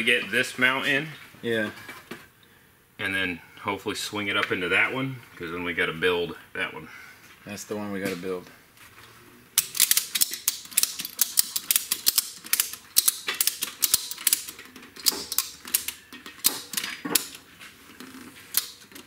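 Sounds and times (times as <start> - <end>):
ratchet strap clicking: 9.6 - 17.4, 18.0 - 19.0.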